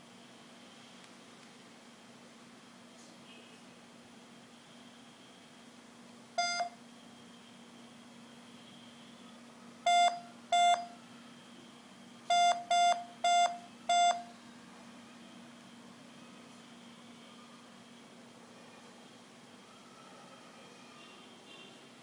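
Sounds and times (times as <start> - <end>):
phone keypad beeps: 6.4 - 6.8, 9.9 - 11.0, 12.3 - 14.3.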